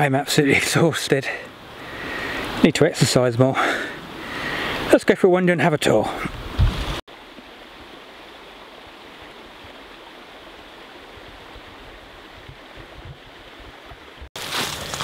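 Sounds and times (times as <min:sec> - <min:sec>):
stream water rushing: 0:00.0 - 0:15.0.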